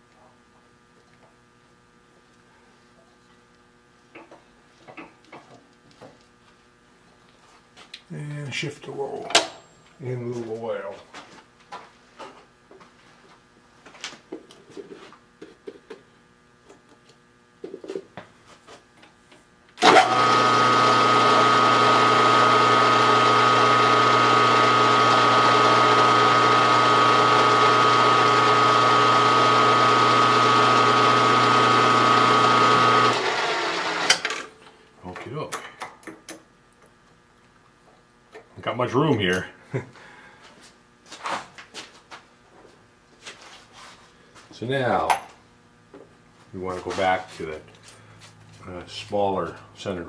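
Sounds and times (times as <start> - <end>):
drill press motor humming: 19.8 - 34.5.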